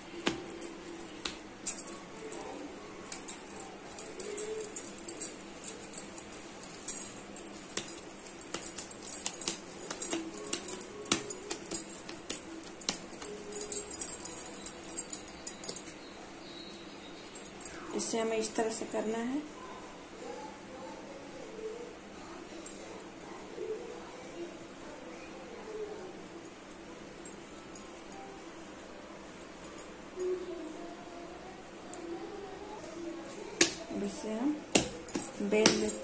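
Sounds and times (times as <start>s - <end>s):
dough kneading clicks and taps: 7.7s - 13.5s, 33.5s - 36.0s.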